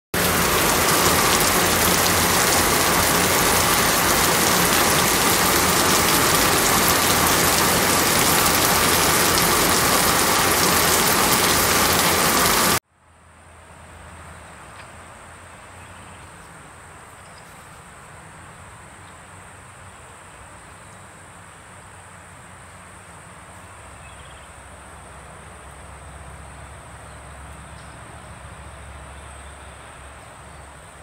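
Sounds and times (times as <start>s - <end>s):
outdoor hiss: 0.2s - 12.8s.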